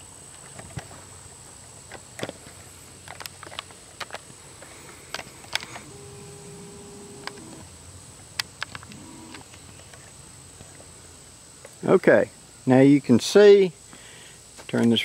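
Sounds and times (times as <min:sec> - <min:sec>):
lens zoom motor whine: 0:05.5 - 0:07.8, 0:08.8 - 0:09.6.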